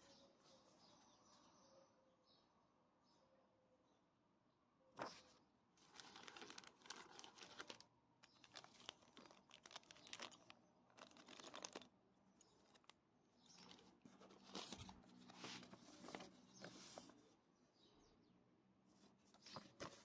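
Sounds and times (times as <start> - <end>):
paper rustling: 5.0 - 17.2, 19.0 - 20.0
plastic bag crinkling: 5.8 - 16.1.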